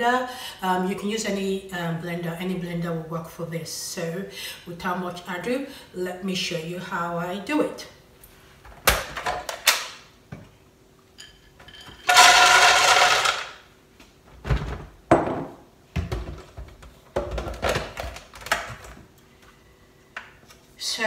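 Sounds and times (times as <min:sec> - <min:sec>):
peanuts rattling into blender jug: 0:12.0 - 0:13.6.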